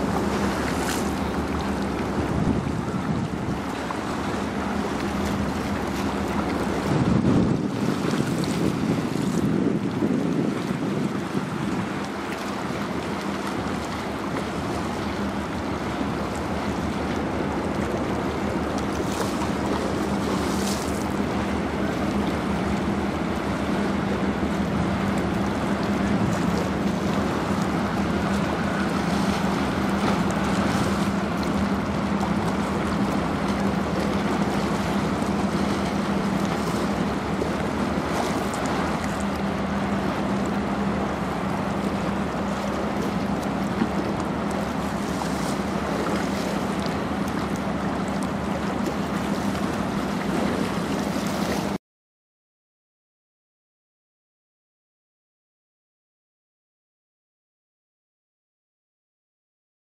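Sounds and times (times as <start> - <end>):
wind on microphone: 0.0 - 15.2
water washing on stone shore: 0.0 - 51.8.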